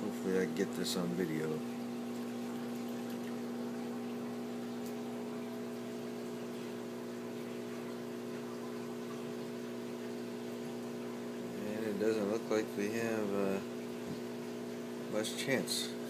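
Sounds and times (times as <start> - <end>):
aquarium filter pump humming: 0.0 - 16.0
water washing: 0.6 - 9.4.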